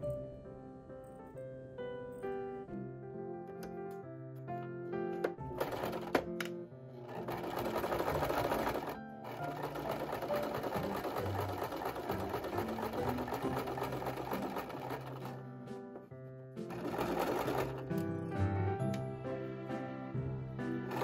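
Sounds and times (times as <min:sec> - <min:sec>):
sewing machine stitching: 0:05.5 - 0:15.5, 0:16.6 - 0:18.1.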